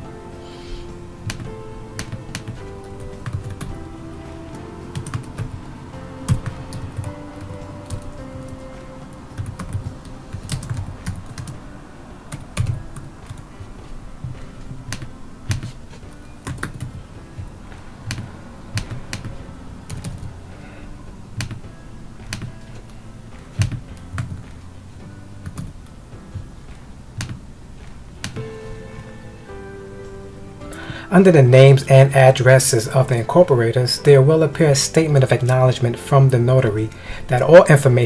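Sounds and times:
computer keyboard typing: 0:01.2 - 0:05.6, 0:06.3 - 0:11.6, 0:12.3 - 0:13.5, 0:14.2 - 0:15.8, 0:16.4 - 0:17.0, 0:18.0 - 0:20.3, 0:21.4 - 0:21.6, 0:22.2 - 0:22.9, 0:25.4 - 0:25.7, 0:27.2 - 0:27.4.

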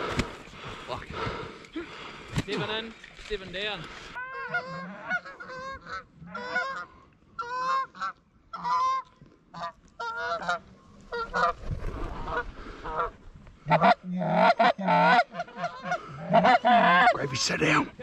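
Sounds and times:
geese honking: 0:04.1 - 0:11.6, 0:12.2 - 0:17.8.

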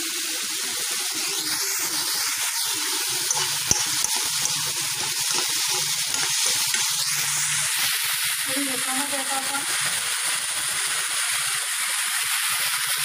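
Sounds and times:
vegetables sizzling in hot oil: 0:00.1 - 0:13.0
steel spatula stirring: 0:03.1 - 0:07.7
spatula tap: 0:03.3 - 0:07.1.

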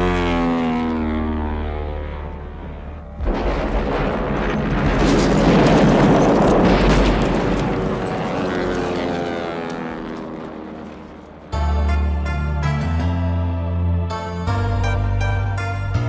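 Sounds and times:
propeller plane engine droning: 0:00.0 - 0:16.0
large explosion rumbling: 0:03.2 - 0:09.0.

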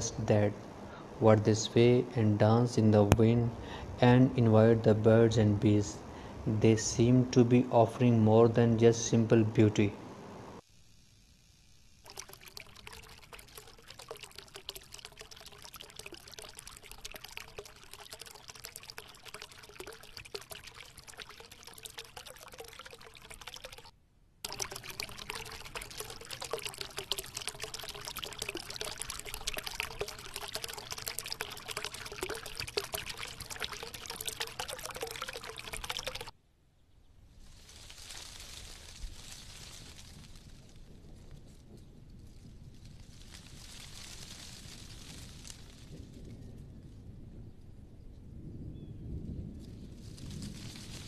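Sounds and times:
water splashing over rocks: 0:12.1 - 0:36.3.

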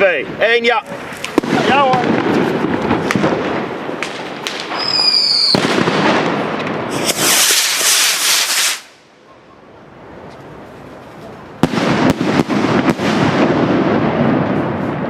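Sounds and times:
rockets launching with rushing hiss: 0:00.1 - 0:09.1
short high whistle: 0:04.8 - 0:05.6.

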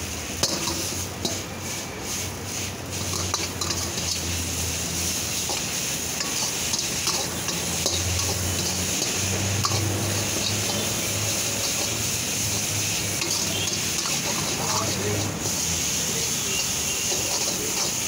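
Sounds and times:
ladle scraping wok: 0:00.0 - 0:18.0
noodles sizzling: 0:00.0 - 0:18.0.

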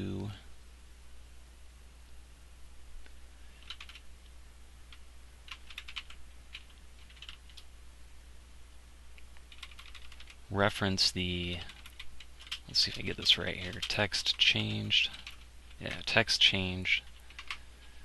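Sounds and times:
low steady hum: 0:00.0 - 0:18.0
computer keyboard typing: 0:03.6 - 0:04.0, 0:04.9 - 0:07.7, 0:09.4 - 0:10.4, 0:11.6 - 0:16.2, 0:17.0 - 0:17.6.

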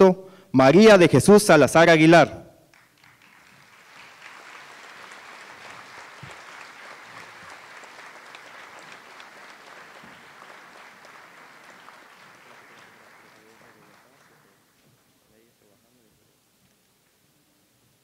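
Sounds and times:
audience applauding in large hall: 0:02.7 - 0:15.2.

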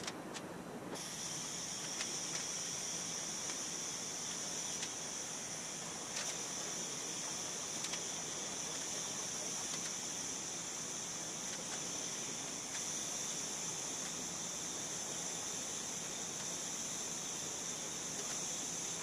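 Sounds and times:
torch flame hissing: 0:00.9 - 0:19.0
faint clicks: 0:04.3 - 0:05.0, 0:07.8 - 0:08.1, 0:09.7 - 0:10.0.

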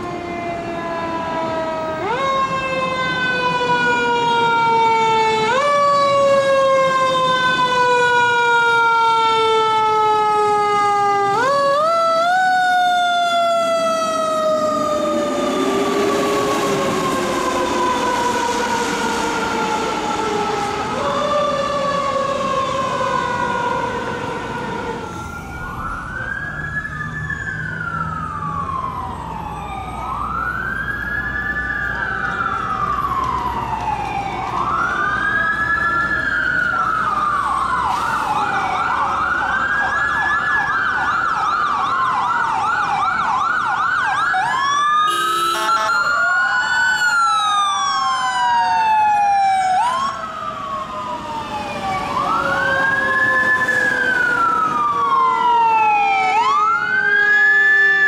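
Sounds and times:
emergency siren wailing: 0:00.0 - 0:58.0
siren yelping: 0:00.0 - 0:58.0
horn blast: 0:45.1 - 0:46.0.

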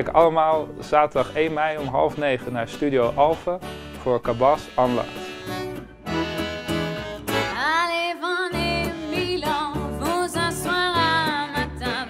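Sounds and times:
acoustic band playing: 0:00.0 - 0:12.0
double bass: 0:03.1 - 0:07.6
woman singing with vibrato: 0:07.5 - 0:12.0.

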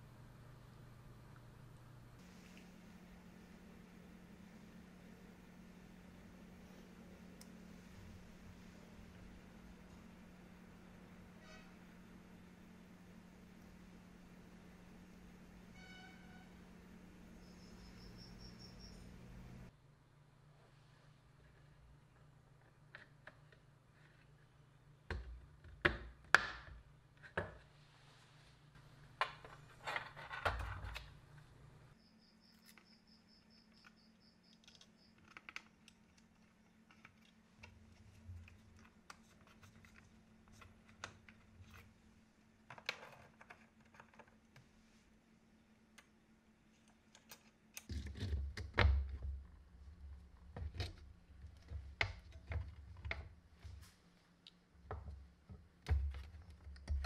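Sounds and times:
plastic parts clicking and tapping: 0:33.8 - 0:41.8, 0:42.6 - 0:44.7.

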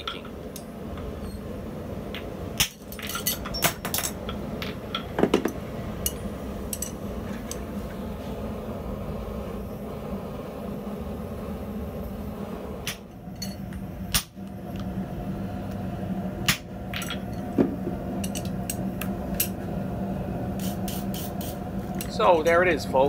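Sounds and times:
hammer striking hot steel: 0:00.0 - 0:08.0, 0:12.8 - 0:14.5, 0:16.4 - 0:19.6
steady hum: 0:00.0 - 0:23.0.

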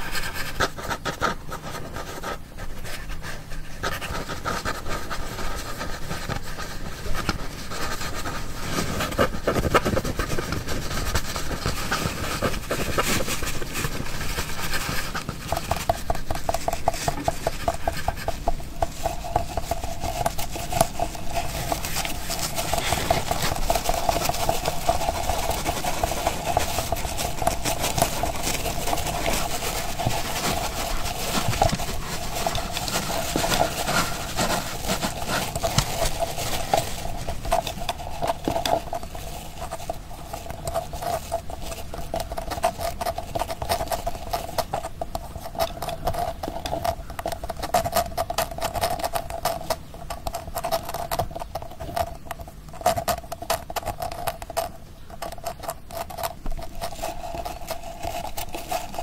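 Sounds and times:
rapid rattling: 0:07.8 - 0:49.7.

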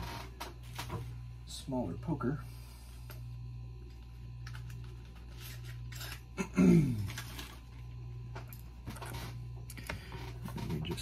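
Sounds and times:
steady low hum: 0:00.0 - 0:11.0
clicks and rustles of handling: 0:07.1 - 0:11.0.

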